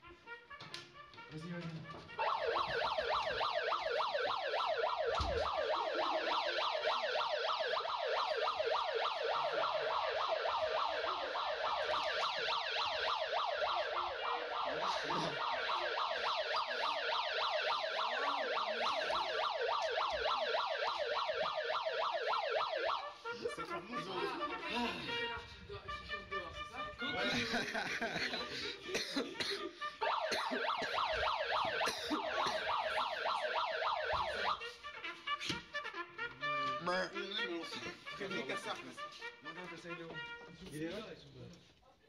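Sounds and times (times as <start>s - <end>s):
electronic siren alarm wailing: 1.9s - 25.5s, 26.7s - 28.9s, 29.9s - 34.8s.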